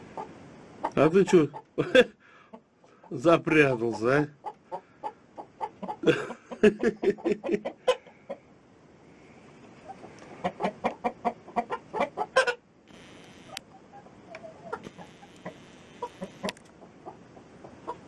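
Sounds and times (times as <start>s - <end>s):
hens clucking: 0.0s - 8.5s, 9.8s - 12.6s, 13.5s - 18.0s.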